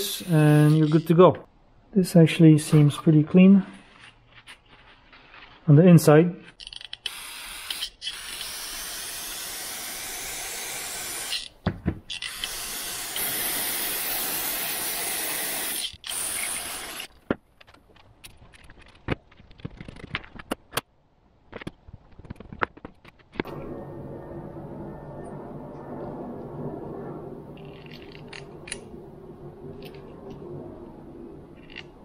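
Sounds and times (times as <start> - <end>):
aerosol spray hissing: 12.5 - 15.8.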